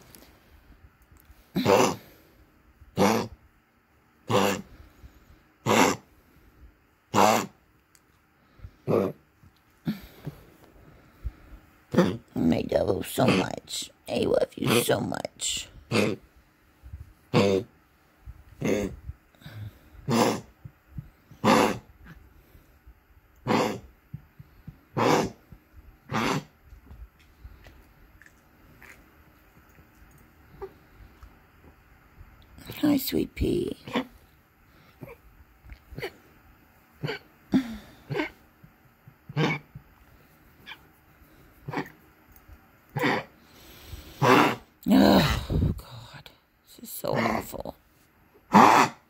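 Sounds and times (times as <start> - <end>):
small dog coughing: 1.6 - 2.0, 3.0 - 3.3, 4.3 - 4.7, 5.6 - 6.0, 7.1 - 7.6, 15.9 - 16.2, 18.6 - 19.0, 20.0 - 20.5, 21.4 - 22.2, 23.4 - 23.9, 25.0 - 25.4, 26.1 - 26.5, 37.0 - 38.4, 39.3 - 39.7, 48.5 - 49.0.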